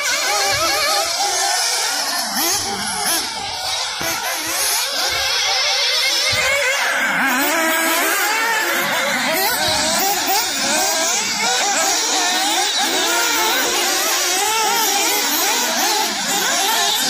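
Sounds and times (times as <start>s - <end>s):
rc car engines revving: 0.0s - 17.0s.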